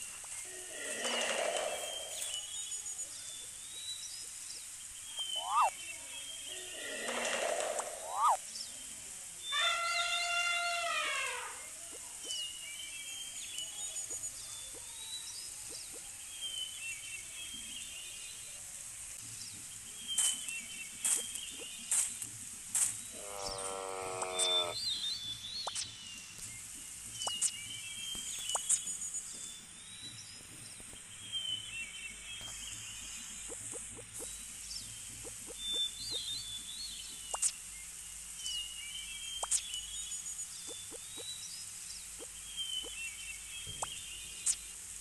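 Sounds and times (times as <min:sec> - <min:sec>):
bird chirps: 0:01.7 - 0:06.5, 0:08.0 - 0:08.4, 0:19.4 - 0:22.2, 0:22.8 - 0:44.8.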